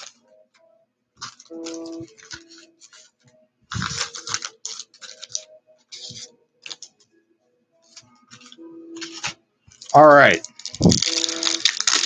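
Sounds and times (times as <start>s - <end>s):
card wrappers crinkling: 0.0s - 0.2s, 1.2s - 7.0s, 7.9s - 12.0s.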